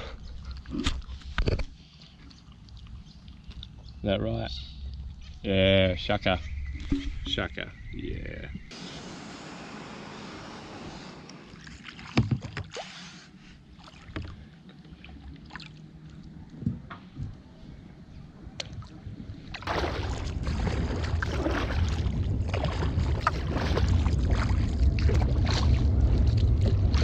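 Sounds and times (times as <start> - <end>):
rush with low rumble: 19.1 - 27.0
paddle strokes in water: 19.5 - 27.0
water dripping and splashing: 19.5 - 27.0.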